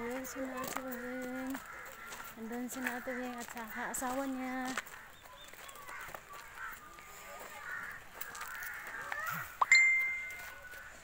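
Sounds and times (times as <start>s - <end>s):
bird calls: 4.4s - 11.0s
sharp metallic ding: 9.6s - 10.5s.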